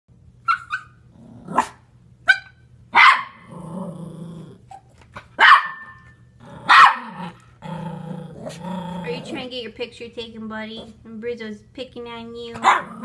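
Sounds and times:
small dogs barking: 0:00.4 - 0:03.6, 0:05.4 - 0:07.8, 0:12.6 - 0:13.0
dog growling: 0:01.1 - 0:01.8, 0:03.4 - 0:04.7, 0:06.4 - 0:09.5, 0:12.6 - 0:13.0.

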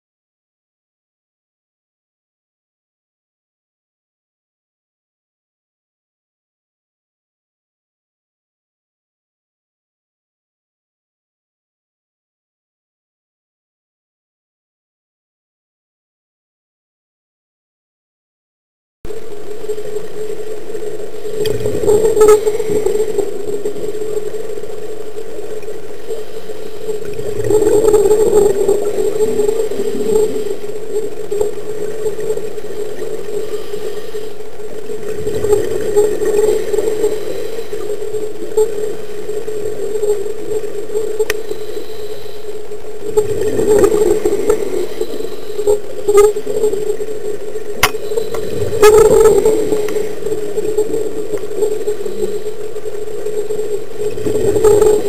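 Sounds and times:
steady underwater hum: 0:19.1 - 0:55.0
regulator bubble bursts: 0:43.1 - 0:45.8.

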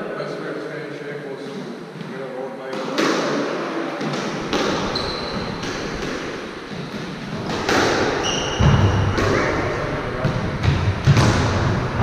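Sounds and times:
squash ball hitting rackets and walls: 0:02.7 - 0:12.0
shoes squeaking on wooden floor: 0:04.4 - 0:09.5.

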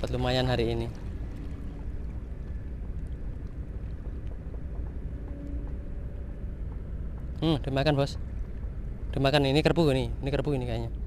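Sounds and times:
wind buffeting microphone: 0:00.0 - 0:11.0
faint ticks: 0:00.8 - 0:07.4.

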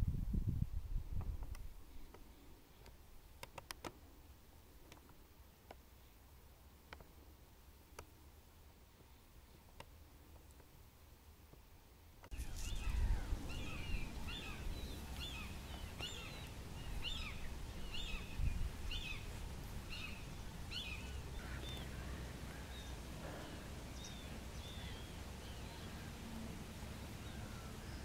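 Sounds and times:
birds short high calls: 0:12.3 - 0:26.3
steady low rumble: 0:12.3 - 0:28.0.

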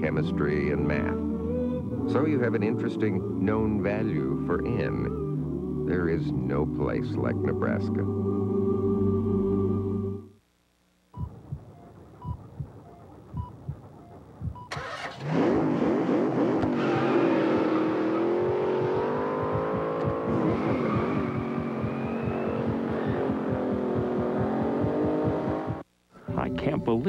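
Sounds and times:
small electronic beeps: 0:11.1 - 0:14.8, 0:18.4 - 0:25.8
fetal heartbeat pulse: 0:11.2 - 0:14.7, 0:18.3 - 0:25.8
car engine revving: 0:12.4 - 0:25.8.

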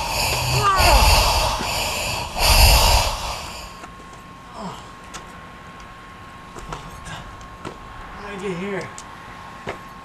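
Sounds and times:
heavy panting breaths: 0:00.0 - 0:03.9
faint steady whine: 0:00.0 - 0:05.0.

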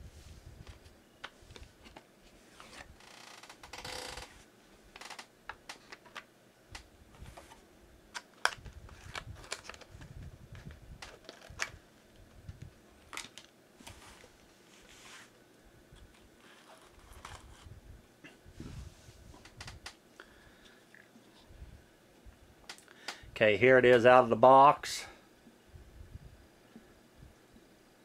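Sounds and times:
packaging rustling scrape: 0:16.4 - 0:17.7.

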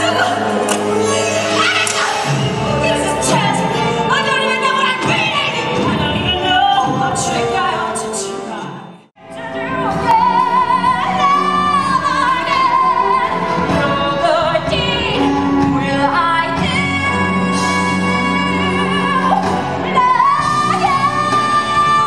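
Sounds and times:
orchestral accompaniment: 0:00.0 - 0:22.0.

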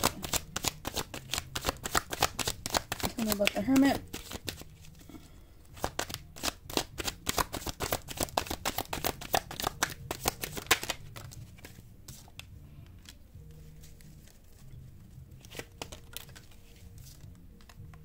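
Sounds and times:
card taps: 0:00.0 - 0:04.6, 0:05.8 - 0:13.2, 0:15.4 - 0:16.6
cards being shuffled: 0:00.0 - 0:18.0.

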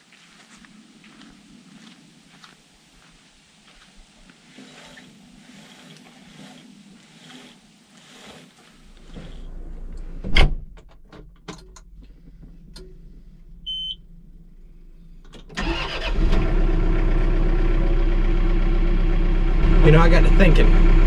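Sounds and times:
tractor engine idling: 0:12.2 - 0:21.0
short electronic beep: 0:13.7 - 0:14.0.

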